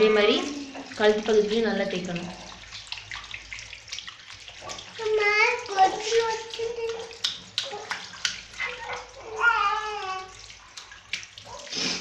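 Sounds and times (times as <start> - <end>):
water splashing: 0.0 - 12.0.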